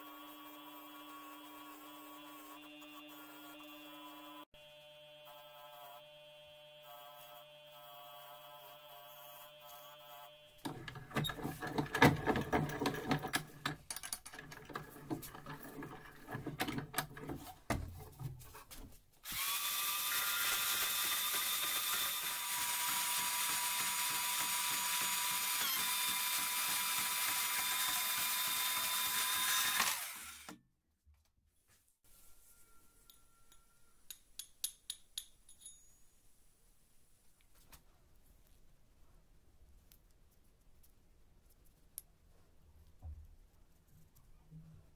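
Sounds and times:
clattering and knocks: 10.7 - 18.5.

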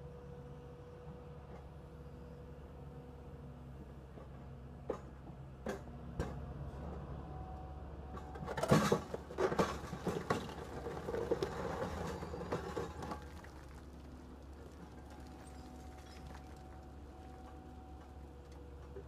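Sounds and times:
excavator engine humming: 0.0 - 19.0
concrete cracking and crunching: 10.0 - 17.4.

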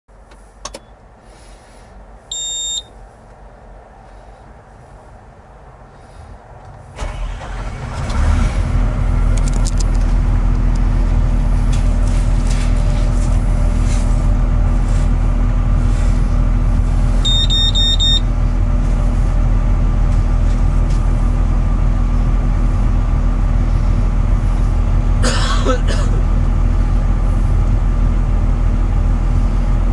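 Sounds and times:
diesel engine starting and idling: 3.8 - 29.9
warning buzzer beeping: 17.2 - 18.3.

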